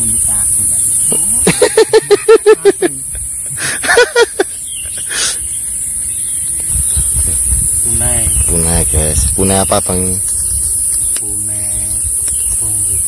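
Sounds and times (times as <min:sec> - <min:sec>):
steady high-pitched hiss: 0:00.0 - 0:13.0
man laughing: 0:01.4 - 0:05.5.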